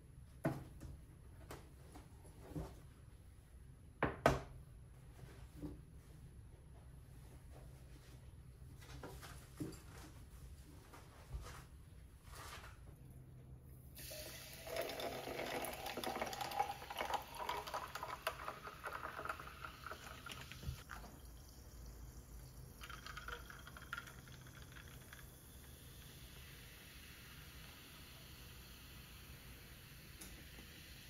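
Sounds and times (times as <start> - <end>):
thin liquid trickle: 14.0 - 26.6
sparkling water pouring and fizzing: 14.0 - 31.0.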